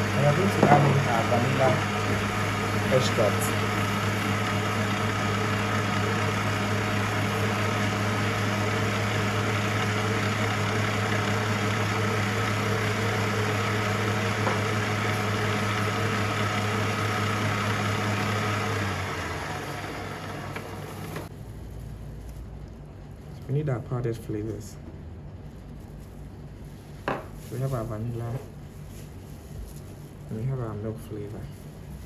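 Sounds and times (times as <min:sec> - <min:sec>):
stand mixer whisking batter: 0:00.0 - 0:21.3.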